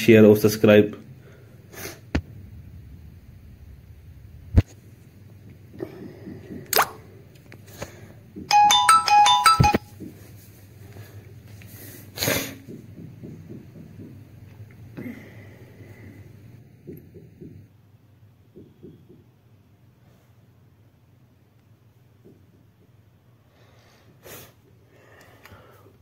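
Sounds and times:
electronic beeping alert tune: 0:08.5 - 0:09.8.

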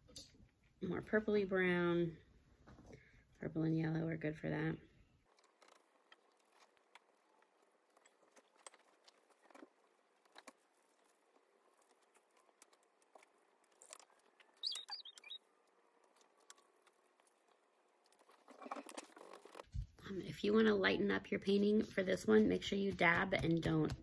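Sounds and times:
brush tapping and scratching: 0:05.3 - 0:19.8, 0:21.8 - 0:24.0
high squeak: 0:14.6 - 0:15.4.

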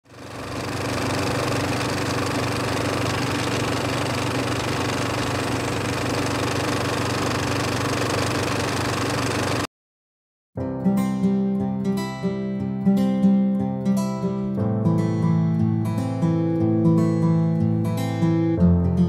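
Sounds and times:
film projector whirring and clattering: 0:00.1 - 0:09.7.

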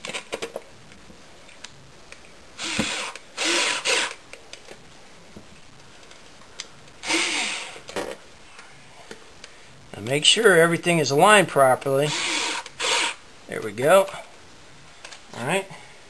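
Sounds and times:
power screwdriver running: 0:02.6 - 0:04.2, 0:07.0 - 0:07.8, 0:12.1 - 0:13.2.

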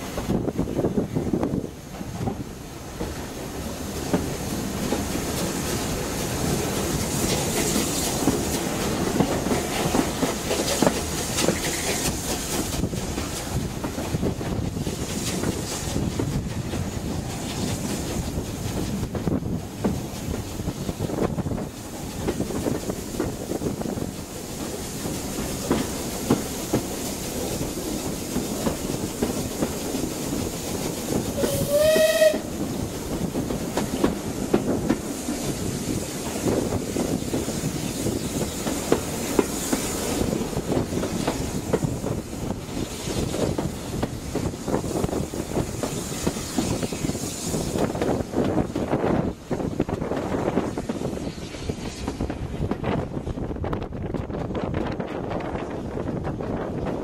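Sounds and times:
train wheels clicking over joints: 0:00.0 - 0:57.0
wind rushing at window: 0:00.0 - 0:57.0
steam whistle blast: 0:31.4 - 0:32.5.

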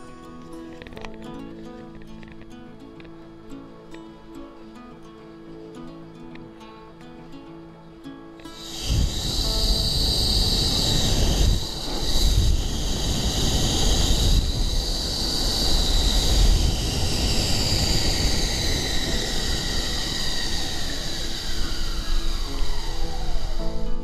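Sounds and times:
snow tube rumbling on snow: 0:08.6 - 0:24.0.

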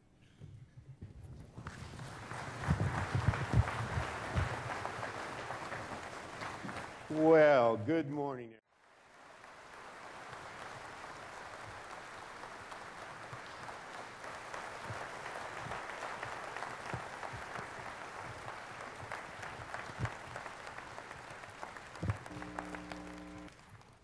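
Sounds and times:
audience applauding: 0:01.7 - 0:07.8, 0:08.8 - 0:24.0.

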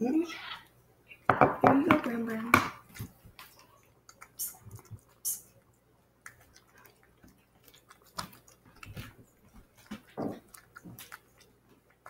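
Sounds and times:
cat eating wet food: 0:02.9 - 0:12.0.

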